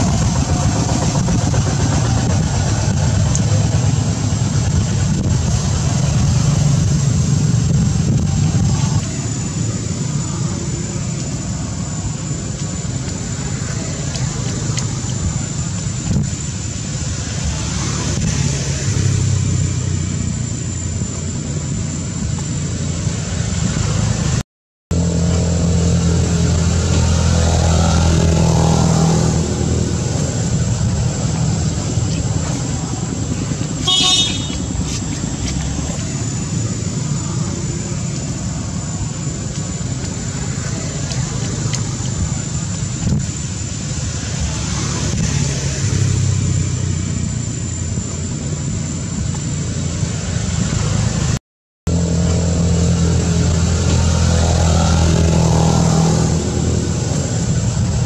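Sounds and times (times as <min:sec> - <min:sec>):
thin high whine: 0:00.0 - 0:24.4, 0:25.0 - 0:58.0
low engine hum: 0:00.0 - 0:58.0
high-pitched toot: 0:33.8 - 0:34.8.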